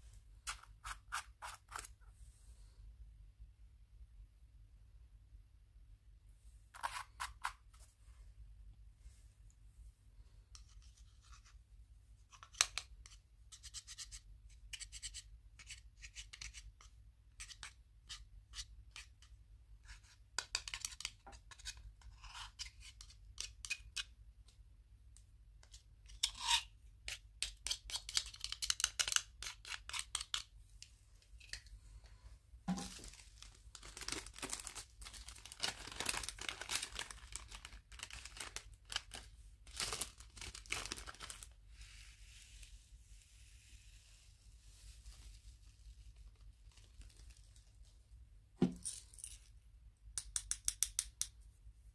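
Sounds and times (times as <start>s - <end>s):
plastic bag rustling: 32.7s - 41.6s.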